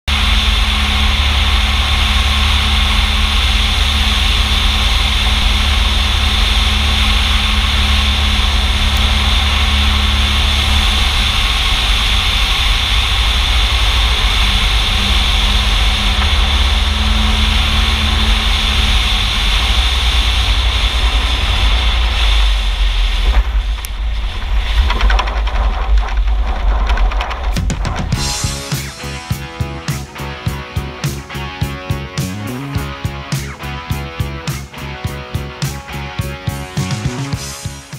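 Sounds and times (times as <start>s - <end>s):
propeller plane engine: 0.0s - 37.9s
wind rush over camera: 0.2s - 28.3s.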